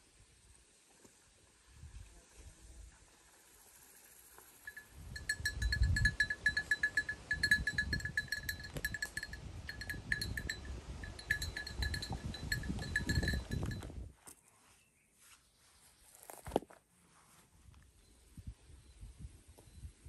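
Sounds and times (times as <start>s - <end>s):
livestock bells clinking: 4.6s - 13.9s.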